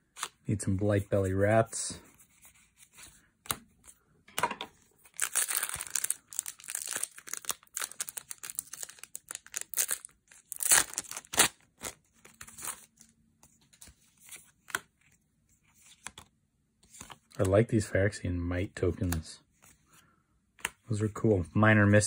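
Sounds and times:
wrapper ripping: 5.0s - 12.9s
cards being handled: 5.0s - 17.6s, 18.8s - 20.0s, 20.6s - 21.2s
foil wrapper crinkling: 5.1s - 12.8s.

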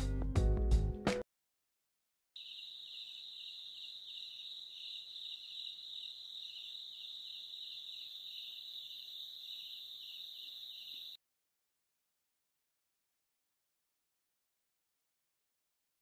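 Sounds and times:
crickets trilling: 2.4s - 11.2s
soft pulsing insect call: 2.4s - 11.2s.

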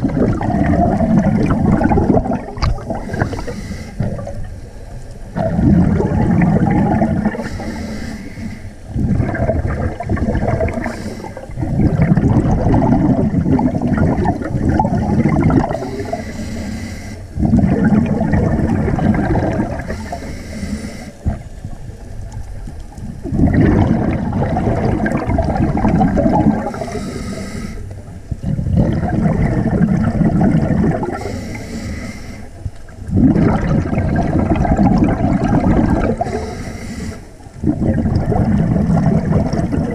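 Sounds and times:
regulator exhale bubbling: 0.0s - 21.8s, 23.0s - 39.9s
regulator inhale hiss: 3.0s - 4.2s, 7.3s - 8.9s, 10.8s - 11.6s, 15.8s - 17.4s, 19.8s - 21.4s, 26.7s - 28.0s, 31.2s - 32.6s, 36.2s - 37.5s.

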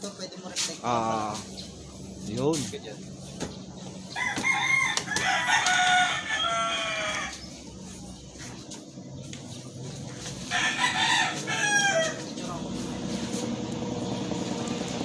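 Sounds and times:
rooster crowing: 4.1s - 7.9s, 10.4s - 12.3s.

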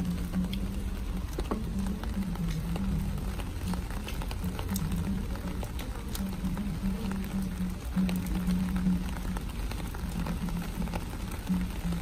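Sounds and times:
rain pattering: 0.0s - 12.0s.

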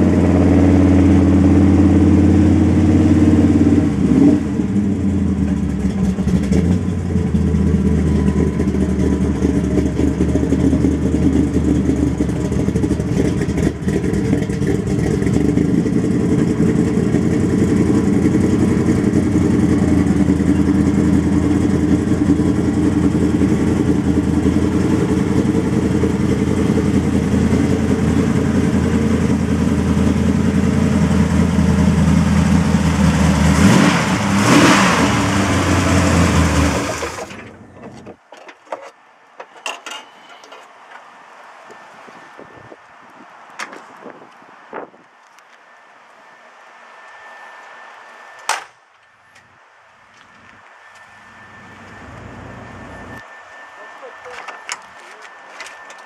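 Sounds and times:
vee eight engine idling: 0.0s - 38.1s, 47.1s - 56.0s
engine revving burst: 32.0s - 37.4s.

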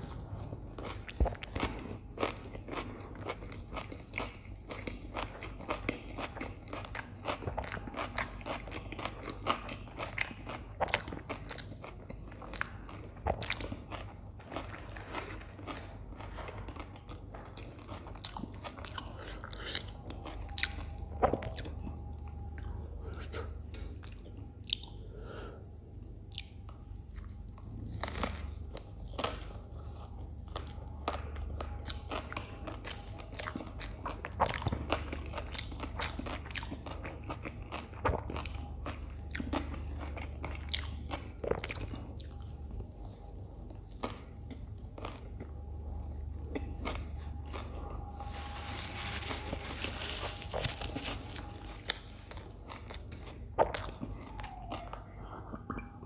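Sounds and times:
crunchy chewing: 0.0s - 25.5s, 26.2s - 56.0s
steady low hum: 0.0s - 56.0s.

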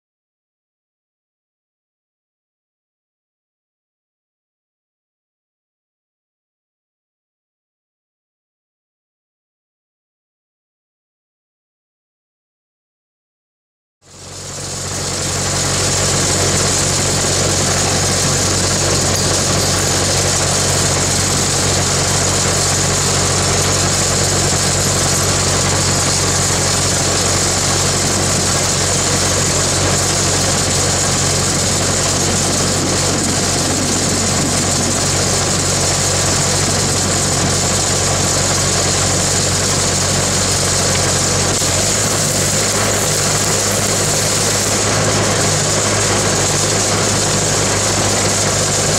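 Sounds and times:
large engine running with low hum: 14.0s - 48.9s.

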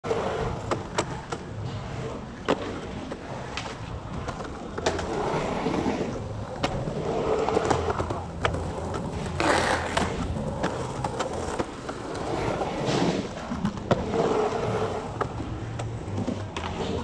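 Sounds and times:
skateboard clacks: 0.0s - 17.0s
skateboard wheels rolling on concrete: 0.0s - 17.0s.

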